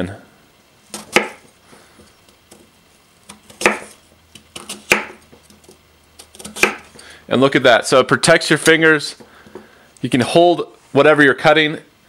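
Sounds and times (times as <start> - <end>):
knife chopping on cutting board: 0.9 - 1.5, 3.3 - 5.3, 6.2 - 6.9.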